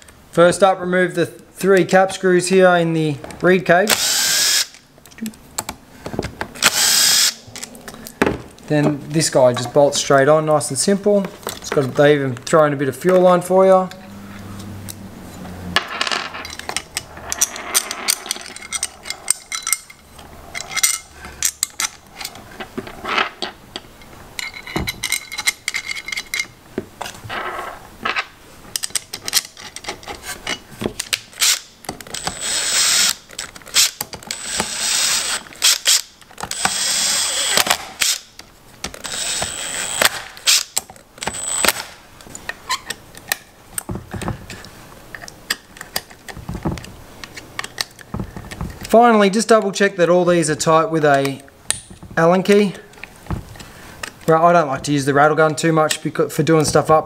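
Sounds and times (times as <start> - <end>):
impact driver bursts: 3.9 - 4.8, 6.6 - 7.4, 31.4 - 38.3, 39.0 - 42.0
small metal parts clicking: 16.4 - 22.4, 23.7 - 26.6.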